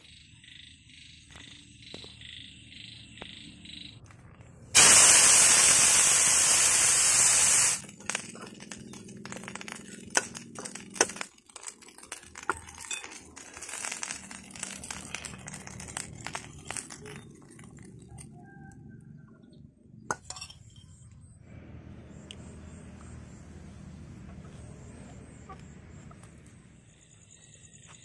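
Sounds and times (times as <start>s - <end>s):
loud steady hiss: 4.8s - 8.0s.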